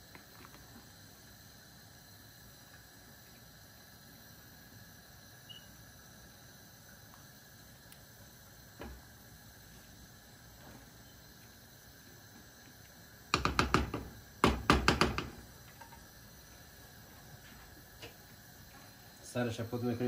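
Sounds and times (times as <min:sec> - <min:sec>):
spatula tapping metal pot: 0:13.4 - 0:15.4.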